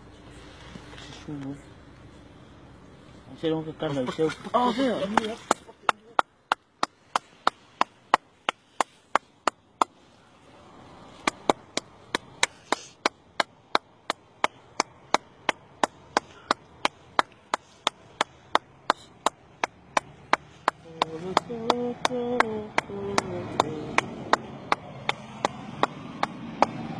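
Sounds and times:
hands clapping: 5.0 - 10.0, 11.2 - 26.8.

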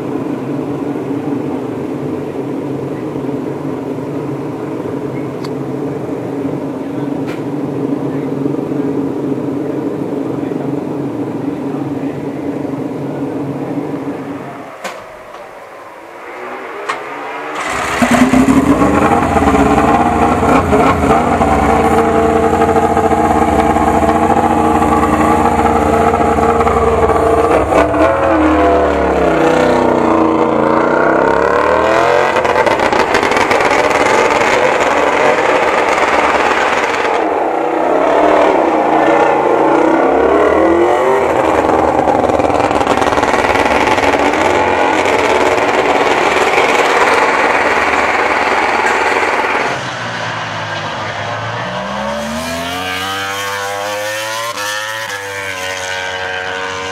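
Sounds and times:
motorcycle engine revving: 16.1 - 37.4, 38.0 - 49.9, 50.9 - 56.9
motorcycle engine starting: 16.4 - 29.2.

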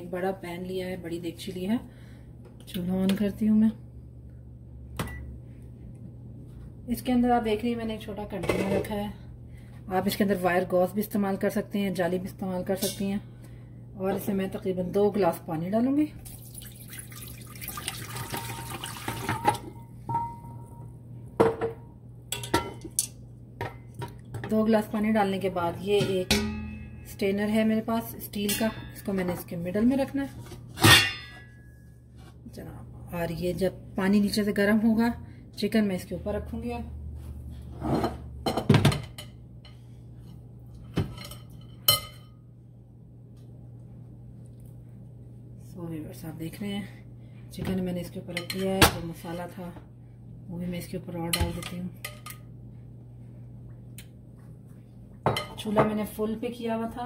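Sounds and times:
low steady hum: 0.0 - 57.0
water pouring into pot: 16.2 - 19.5
metal cookware knocking: 19.3 - 20.7, 26.0 - 27.0
steel cookware clinking: 26.0 - 27.1.

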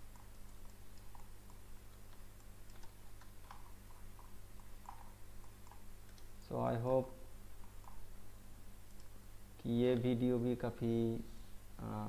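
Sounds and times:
keyboard and mouse clicking: 0.0 - 6.3, 8.9 - 9.2.

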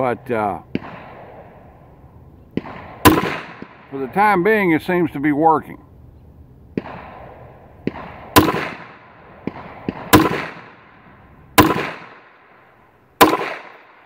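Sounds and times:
pistol shots with echo: 0.5 - 1.7, 2.5 - 4.2, 6.8 - 12.6, 13.2 - 14.0.

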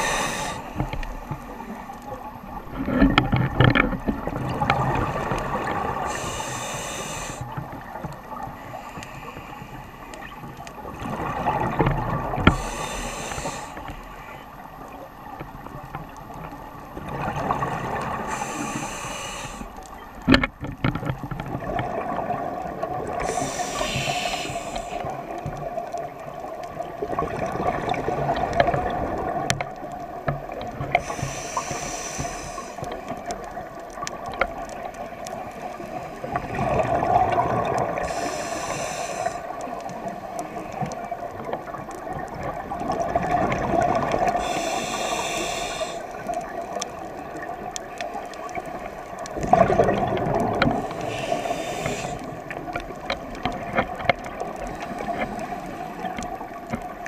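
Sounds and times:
regulator inhale hiss: 0.0 - 1.6, 5.7 - 10.4, 12.4 - 14.5, 17.7 - 20.0, 23.1 - 25.3, 30.8 - 33.4, 37.9 - 40.9, 44.1 - 46.9, 50.6 - 52.8, 54.6 - 56.4
rush of exhaled bubbles: 10.8 - 13.7, 36.3 - 39.4, 42.3 - 44.8, 49.3 - 52.4.

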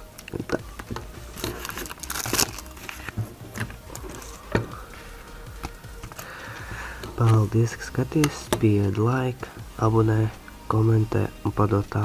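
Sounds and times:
packaging crinkling and rustling: 1.4 - 4.4.

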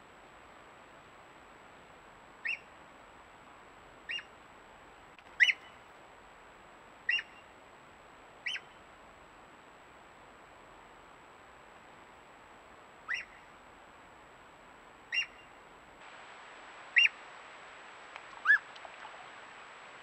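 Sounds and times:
otter whistling: 7.1 - 7.4, 8.5 - 8.7, 13.1 - 13.4, 15.1 - 15.4, 16.9 - 17.2, 18.3 - 18.8.

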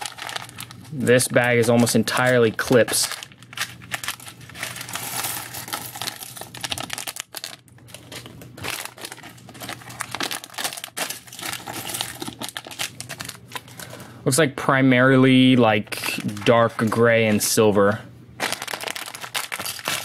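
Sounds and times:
plastic bags crinkling and tearing: 0.0 - 14.0, 15.9 - 17.1, 18.4 - 20.0
plastic pieces clattering: 0.0 - 14.0, 18.4 - 20.0.

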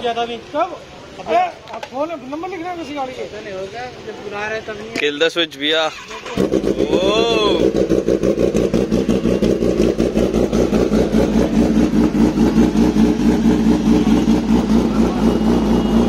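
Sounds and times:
motorcycle engine idling: 6.0 - 16.0.

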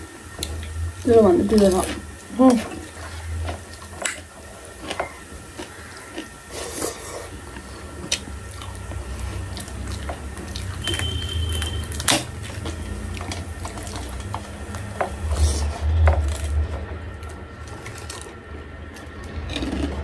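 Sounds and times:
wet chewing: 1.5 - 20.0
high steady tone: 10.8 - 12.0.

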